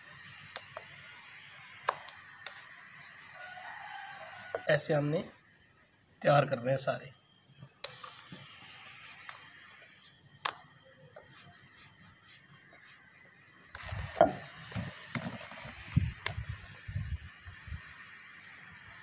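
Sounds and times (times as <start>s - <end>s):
rolling pin rubbing dough: 11.1s - 15.6s.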